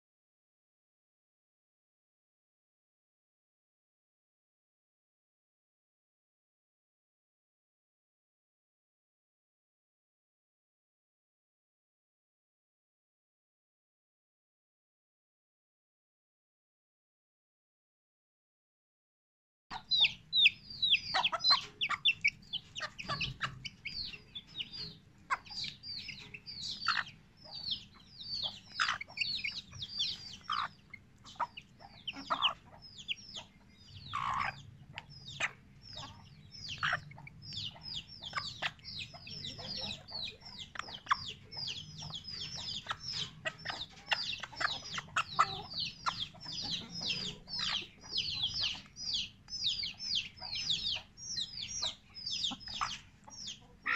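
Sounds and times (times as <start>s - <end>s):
chick peeping: 19.7s - 53.9s.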